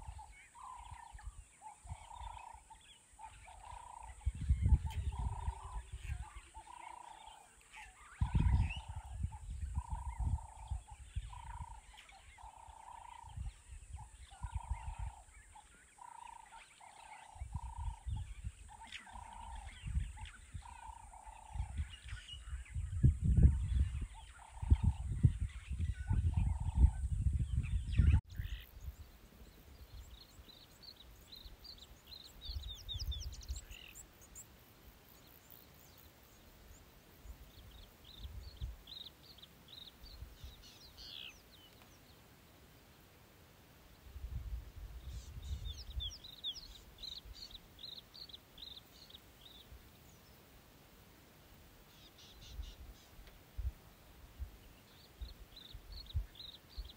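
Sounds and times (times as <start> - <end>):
small birds chirping: 0.0 - 56.9
steady high hiss: 28.3 - 56.9.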